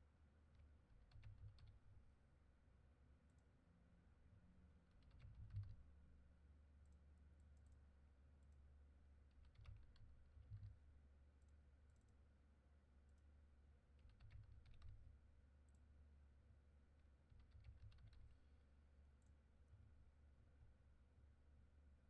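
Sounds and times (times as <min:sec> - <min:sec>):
low steady hum: 0:00.0 - 0:22.0
keyboard typing: 0:09.4 - 0:10.8, 0:14.0 - 0:15.1, 0:17.3 - 0:18.4.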